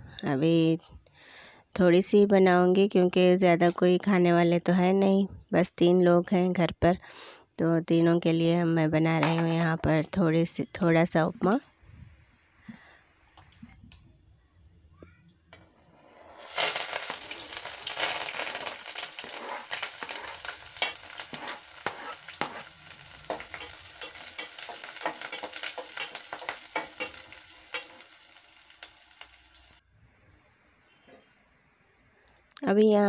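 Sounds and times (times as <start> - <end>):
metal spoon stirring in pot: 16.3 - 29.4
vegetables sizzling in hot oil: 16.3 - 29.8.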